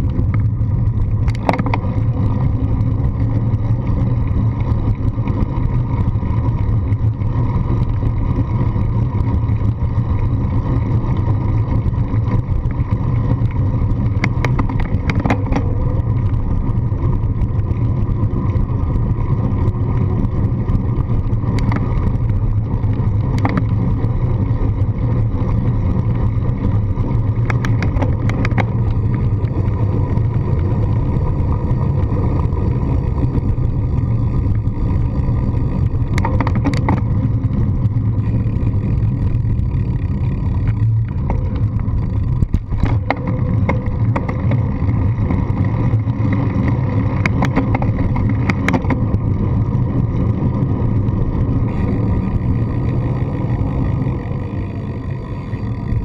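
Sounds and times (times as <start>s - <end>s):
road vibration rumble: 0.0s - 56.0s.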